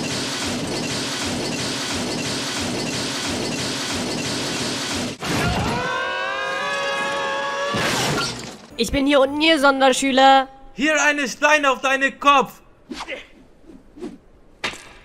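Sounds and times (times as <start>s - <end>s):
heavy objects crashing and smashing: 7.0s - 8.7s.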